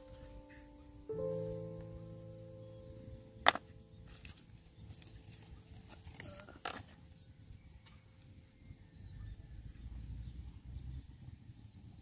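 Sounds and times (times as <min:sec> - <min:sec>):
low hum: 0:00.0 - 0:06.1.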